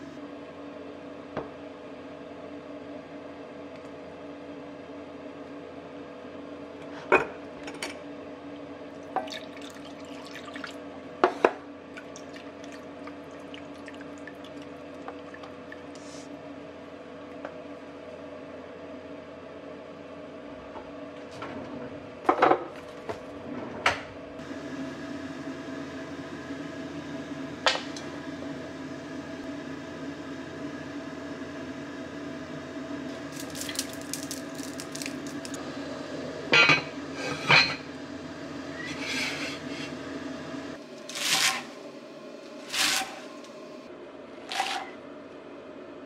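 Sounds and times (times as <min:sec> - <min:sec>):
steady low hum: 0:00.0 - 0:46.0
pots and utensils clinking: 0:36.5 - 0:37.9.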